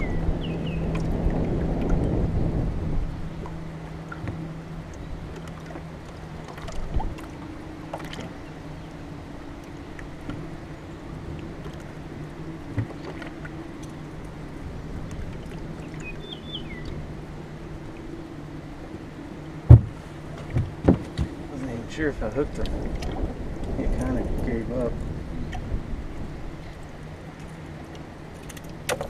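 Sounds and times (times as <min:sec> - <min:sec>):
boat motor humming: 0:00.0 - 0:29.0
high bird chirp: 0:15.9 - 0:17.0.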